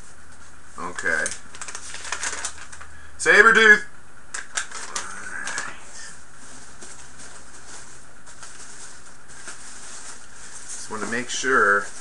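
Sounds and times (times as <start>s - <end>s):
faint low hum: 0.0s - 12.0s
room hiss: 0.0s - 12.0s
packing peanuts rustling in box: 0.8s - 2.9s, 4.5s - 12.0s
murmured hum: 4.7s - 8.3s.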